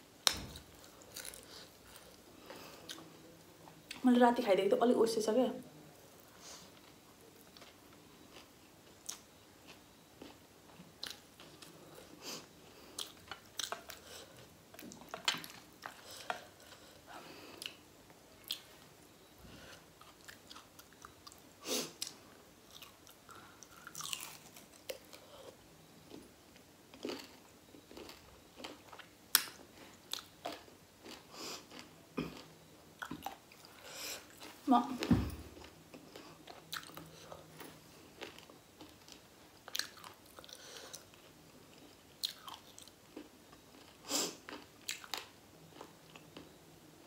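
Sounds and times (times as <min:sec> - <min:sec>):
person chewing crunchy food: 0:00.6 - 0:03.1, 0:06.8 - 0:10.4, 0:11.0 - 0:16.9, 0:20.0 - 0:21.4, 0:22.0 - 0:26.3, 0:26.9 - 0:34.6, 0:35.5 - 0:46.6.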